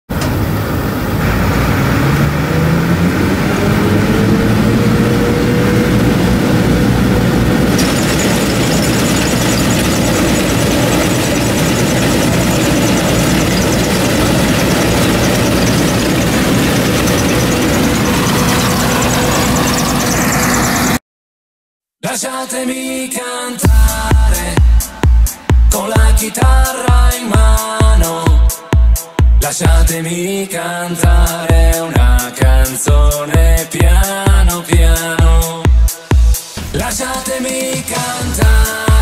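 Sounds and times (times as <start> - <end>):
diesel engine revving: 0.1 - 21.0
high-pitched machinery rattle: 3.6 - 21.0.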